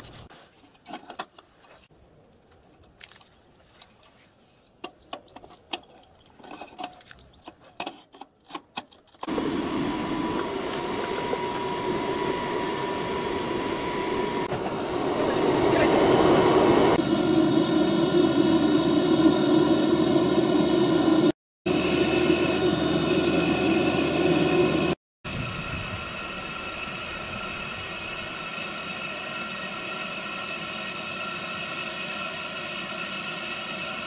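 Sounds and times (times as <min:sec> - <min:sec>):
electric blower fan whine: 0:09.3 - 0:31.0.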